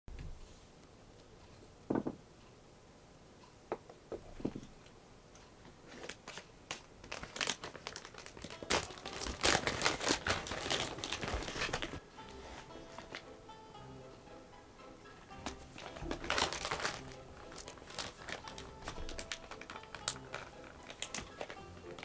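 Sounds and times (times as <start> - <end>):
small knocks: 1.9 - 2.2.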